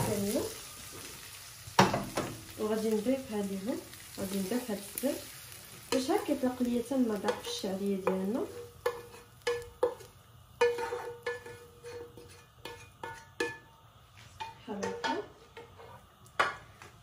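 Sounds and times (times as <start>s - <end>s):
spatula clinking and knocking on pan: 1.8s - 2.4s, 7.2s - 13.7s, 14.4s - 15.7s.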